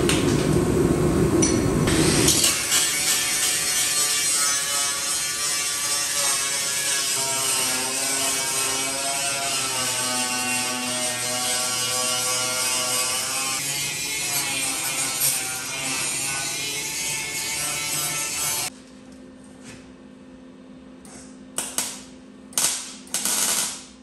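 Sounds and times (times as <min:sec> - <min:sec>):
angle grinder grinding metal: 0:01.9 - 0:18.7.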